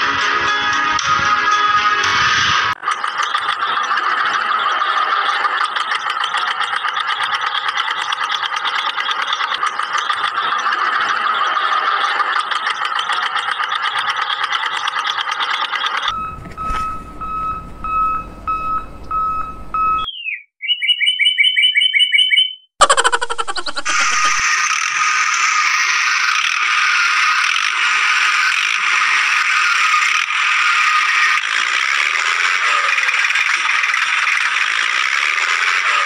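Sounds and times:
tractor engine running: 2.7s - 20.1s, 30.1s - 36.0s
pulsing beep: 16.1s - 22.7s
short repeated chirps: 19.2s - 22.7s.

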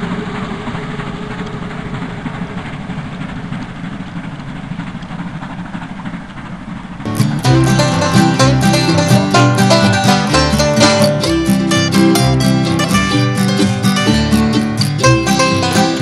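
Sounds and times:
steam locomotive exhaust: 0.0s - 16.0s
bluegrass music with banjo and guitar: 7.1s - 16.0s.

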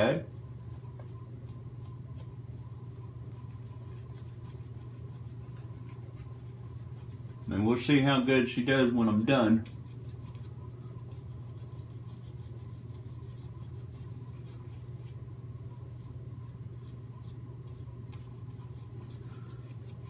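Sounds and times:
steady low hum: 0.0s - 20.0s
shaving brush scrubbing face: 0.7s - 20.0s.

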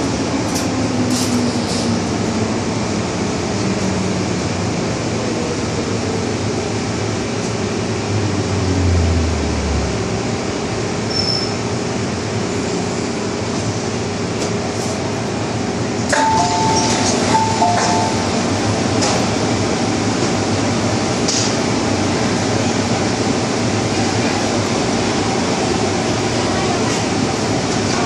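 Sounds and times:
metro train wheels rumbling on rail: 0.0s - 28.0s.

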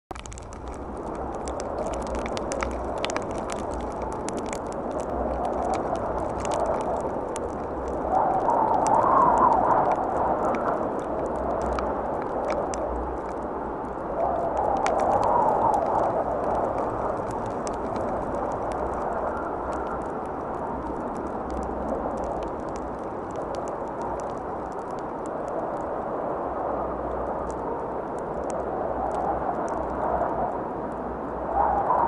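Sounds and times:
small ticks and crackles: 0.0s - 32.0s
wind rushing on microphone: 0.1s - 32.0s.

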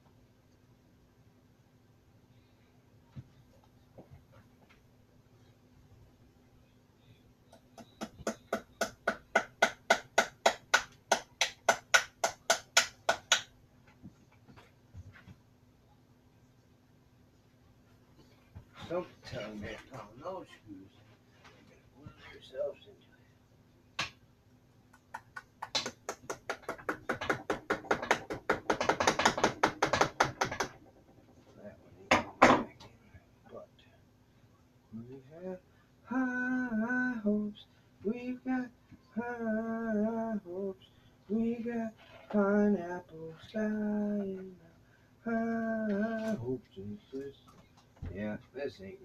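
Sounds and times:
hammer tapping nails into wood: 7.5s - 13.5s, 25.2s - 31.0s.

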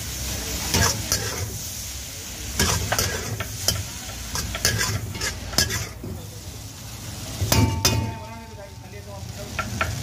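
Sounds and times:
noodles sizzling: 0.0s - 10.0s
metal spatula scraping a wok: 0.7s - 1.8s, 2.5s - 6.1s.

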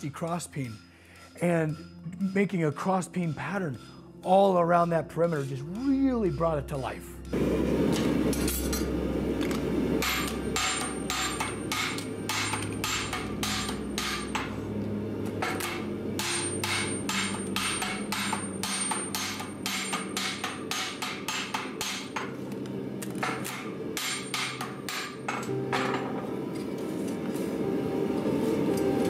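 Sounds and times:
hammer striking metal tool: 10.0s - 14.6s, 15.4s - 22.4s, 23.2s - 26.3s.

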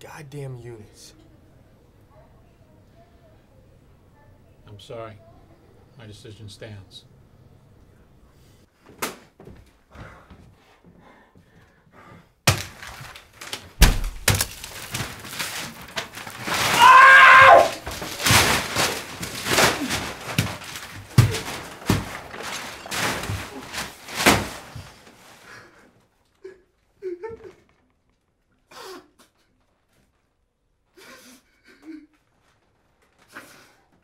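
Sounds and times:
paper tearing and rustling: 12.5s - 25.5s
man yelling: 16.7s - 17.8s.

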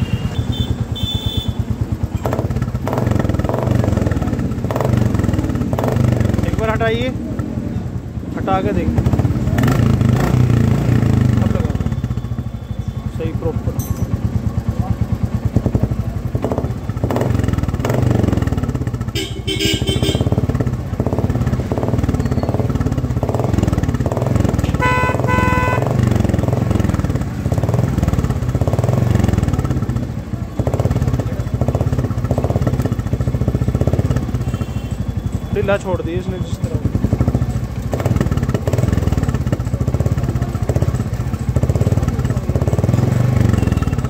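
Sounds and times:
vehicle horn beeps: 0.0s - 1.8s, 11.8s - 13.2s, 19.1s - 20.4s, 24.7s - 26.0s, 34.3s - 35.7s, 43.4s - 44.0s
motorcycle engine idling: 0.0s - 44.0s.

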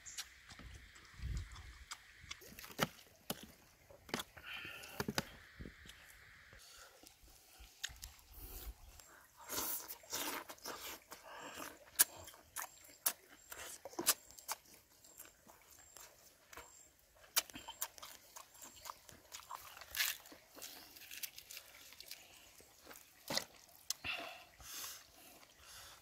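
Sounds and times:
wet mouth clicks and smacks: 0.1s - 3.0s
man chewing and crunching: 0.1s - 5.2s, 6.9s - 26.0s.

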